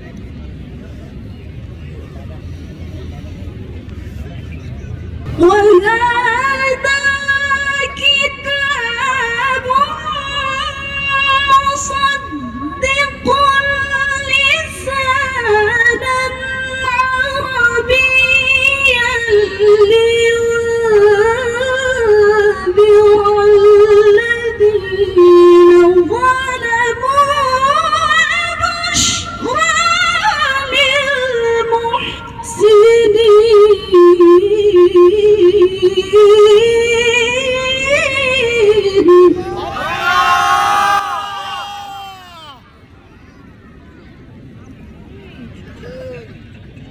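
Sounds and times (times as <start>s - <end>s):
woman reciting melodically: 5.3s - 39.4s.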